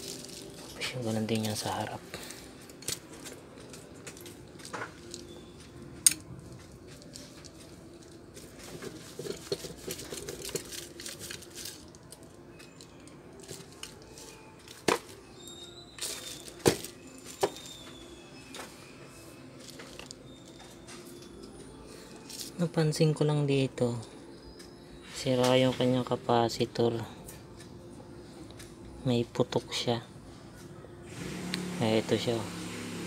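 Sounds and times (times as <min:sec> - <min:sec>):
bubble wrap rustling: 0:00.0 - 0:04.0, 0:06.9 - 0:12.3, 0:16.0 - 0:17.9
metal parts clicking and knocking: 0:06.0 - 0:17.9, 0:19.6 - 0:21.5.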